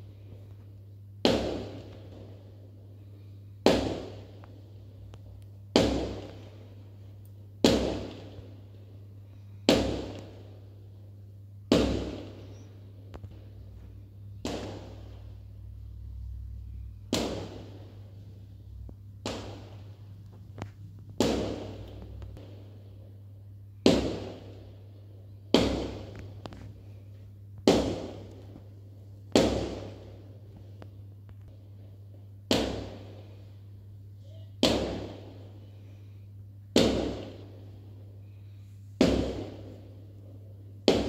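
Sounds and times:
steady low hum: 0.0 - 41.0
sharp bangs or knocks: 16.7 - 18.0, 19.2 - 22.7.

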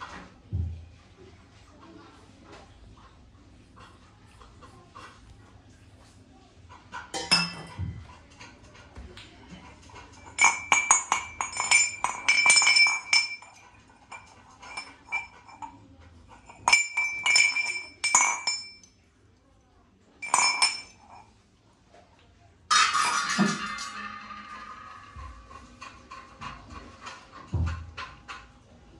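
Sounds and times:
brass utensils clinking: 10.1 - 15.7, 16.3 - 18.9, 20.2 - 21.3, 22.7 - 27.4.

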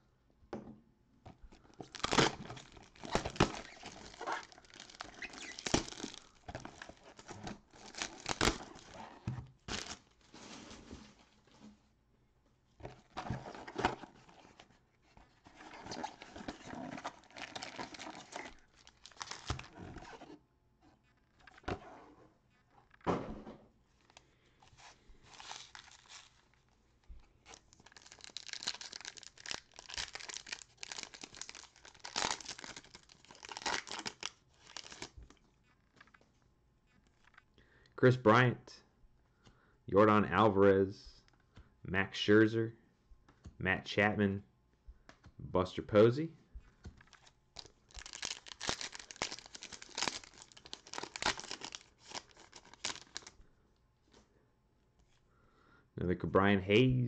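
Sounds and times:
foil pack crinkling: 1.5 - 11.0, 15.6 - 20.1, 24.8 - 26.6, 27.4 - 35.4, 47.0 - 53.4.

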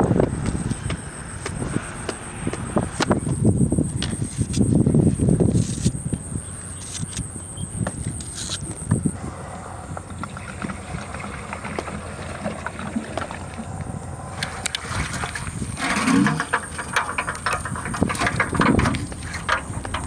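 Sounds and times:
metal pot knocking and scraping: 15.5 - 20.0.

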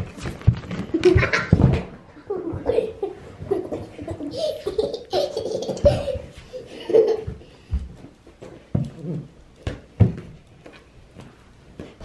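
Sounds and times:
young child laughing: 0.9 - 7.4
ball thumping on floor: 7.2 - 10.4.

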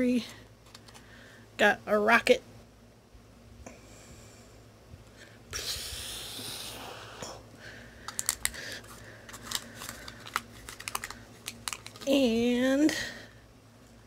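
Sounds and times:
plastic pieces clicking and tapping: 8.1 - 8.6, 9.3 - 12.1.

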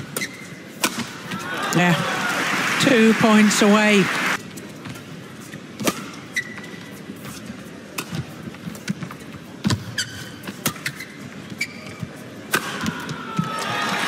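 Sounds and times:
shoes squeaking on court: 0.0 - 1.4, 4.5 - 12.5
racket hitting shuttlecock: 0.1 - 1.4, 5.8 - 6.2, 12.5 - 13.5.

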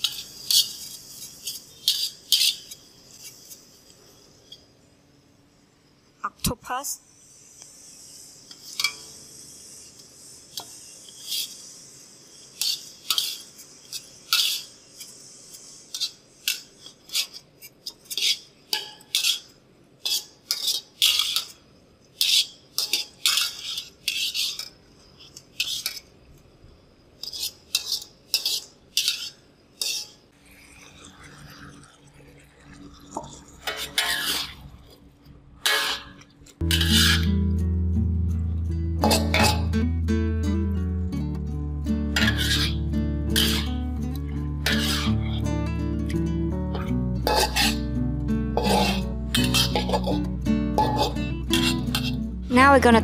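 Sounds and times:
utensil scraping and clinking pan: 0.0 - 3.6, 12.6 - 15.1, 15.9 - 21.6, 22.2 - 26.1, 27.2 - 30.2, 33.1 - 34.6, 35.6 - 37.4, 39.0 - 39.8, 42.2 - 43.8, 44.6 - 45.4, 47.2 - 47.9, 48.5 - 52.3
food stir-frying: 0.0 - 4.9, 7.1 - 26.4, 27.1 - 53.0.

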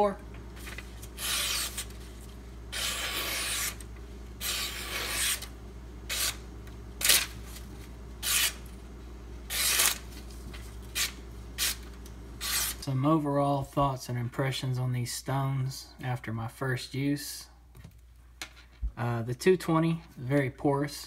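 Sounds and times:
knife slicing paper: 0.6 - 2.0, 2.7 - 3.8, 4.4 - 5.5, 6.1 - 6.4, 7.0 - 7.6, 8.2 - 8.6, 9.5 - 10.3, 12.4 - 12.8.

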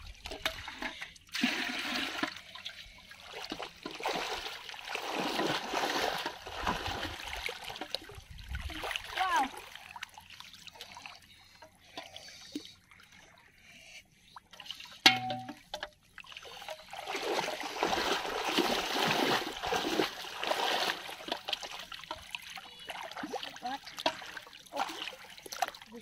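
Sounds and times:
water splashing and trickling: 0.0 - 26.0.

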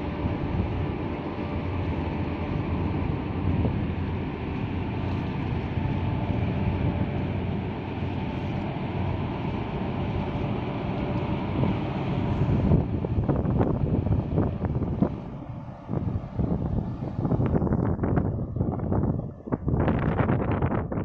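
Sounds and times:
low engine rumble: 0.0 - 21.0
wind noise on microphone: 0.0 - 21.0.

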